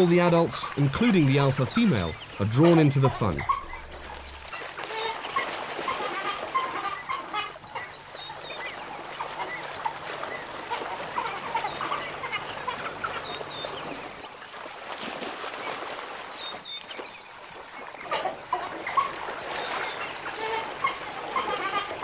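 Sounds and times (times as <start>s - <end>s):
splashing in shallow water: 0.0s - 22.0s
wild dogs twittering chirps: 0.7s - 6.0s.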